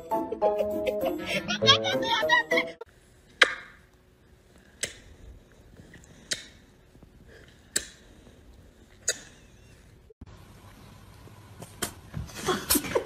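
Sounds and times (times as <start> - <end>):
lip-smack kisses: 9.0 - 9.4.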